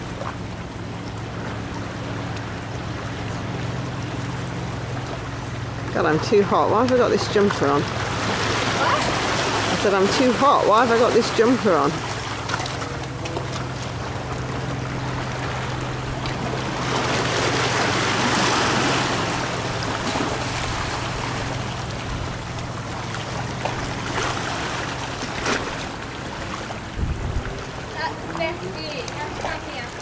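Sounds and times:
steady low hum: 0:00.0 - 0:30.0
waves washing against rocks: 0:06.0 - 0:30.0.

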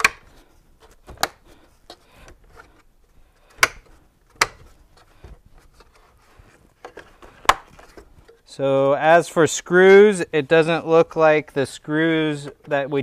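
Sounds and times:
plastic clips clicking into place: 0:00.0 - 0:02.4, 0:03.4 - 0:04.8
plastic rubbing and ticking: 0:00.0 - 0:08.5.

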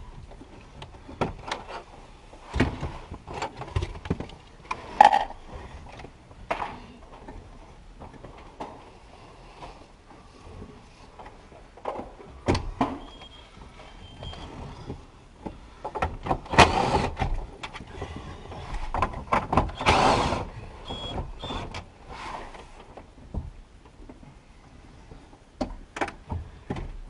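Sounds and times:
plastic parts and tools clattering: 0:02.6 - 0:06.6.

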